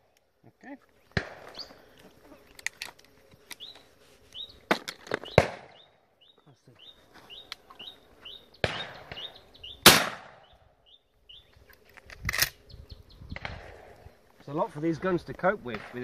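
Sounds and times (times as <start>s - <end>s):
shotgun shots: 1.2s - 1.5s, 5.2s - 5.8s, 8.6s - 10.5s.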